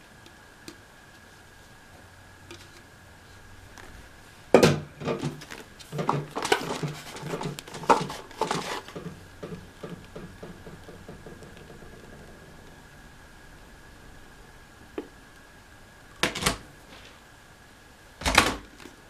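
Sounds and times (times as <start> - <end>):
plastic parts knocking and rattling: 4.6 - 12.4.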